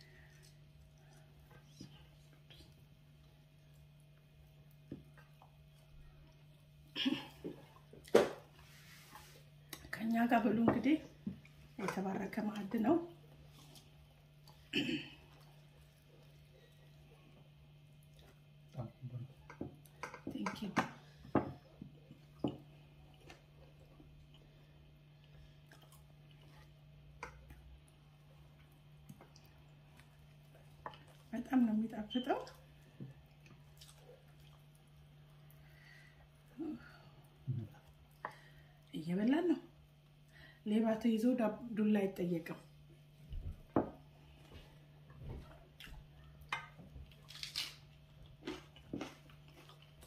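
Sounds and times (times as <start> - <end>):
faint chewing: 0.0 - 10.0, 11.1 - 31.4, 32.4 - 38.9, 44.2 - 50.0
bread tearing and chewing: 47.1 - 50.0.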